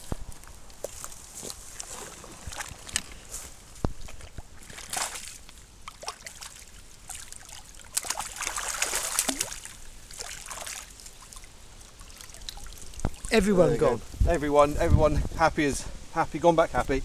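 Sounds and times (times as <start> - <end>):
water splashing and sloshing: 0.3 - 13.7.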